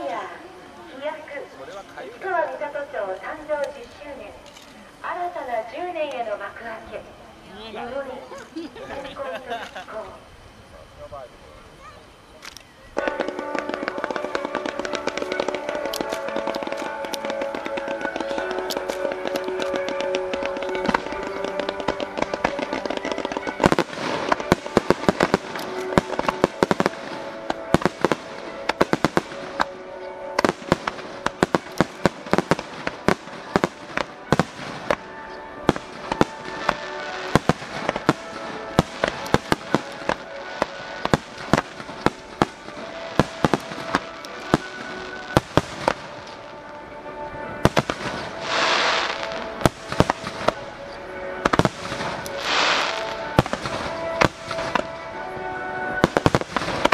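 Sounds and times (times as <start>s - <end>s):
fireworks bangs: 13.0s - 46.8s, 47.4s - 56.9s
music playing: 13.0s - 56.9s
burst of hiss: 48.2s - 50.3s.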